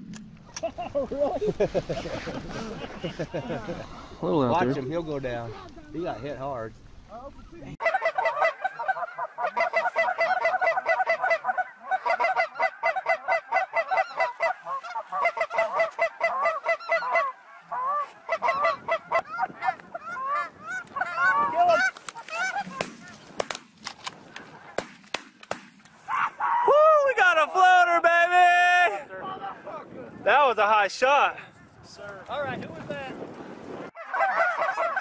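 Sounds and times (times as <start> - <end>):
geese honking: 7.3 - 23.4, 34.0 - 35.0
shotgun shots: 24.8 - 25.9.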